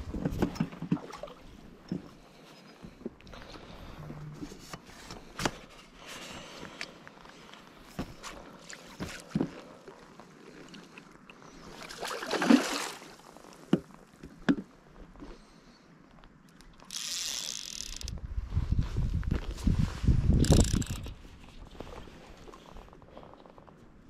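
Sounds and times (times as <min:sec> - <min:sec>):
fish splashing and thrashing in water: 0:10.6 - 0:13.3.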